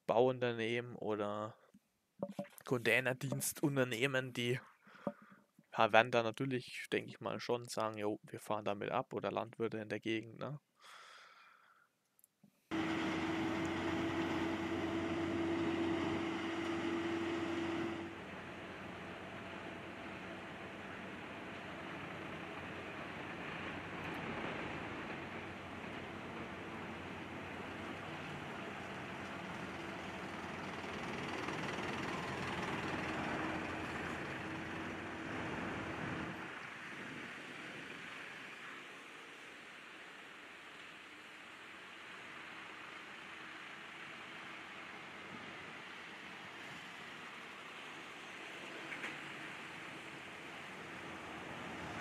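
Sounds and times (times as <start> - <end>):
constant whine: 2.2 - 4.1, 12.7 - 39.1
tractor diesel engine running: 12.7 - 36.6
road noise: 12.7 - 52.0.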